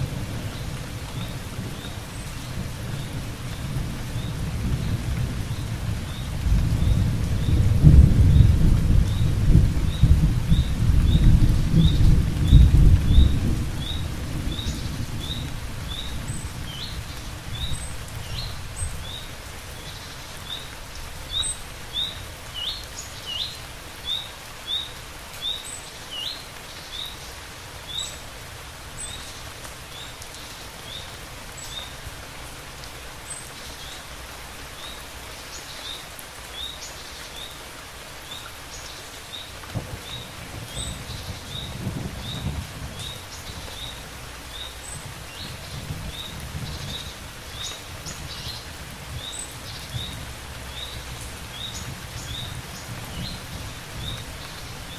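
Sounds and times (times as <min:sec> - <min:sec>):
thunder rumble: 0:00.0 - 0:19.1, 0:39.7 - 0:43.8
steady rain falling: 0:00.0 - 0:54.9.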